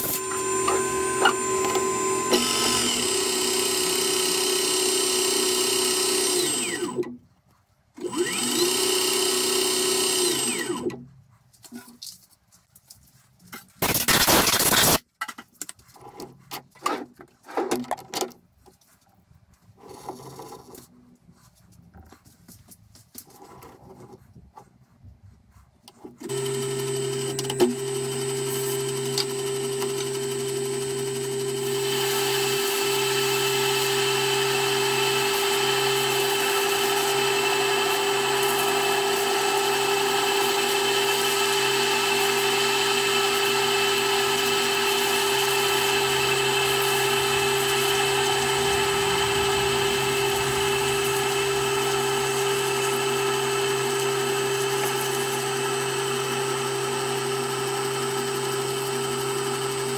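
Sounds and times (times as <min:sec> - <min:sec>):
drill cutting metal bar hiss: 0:00.0 - 0:07.0, 0:13.8 - 0:15.0, 0:26.2 - 0:56.7
metal lathe humming: 0:00.0 - 0:07.0, 0:26.2 - 0:57.0.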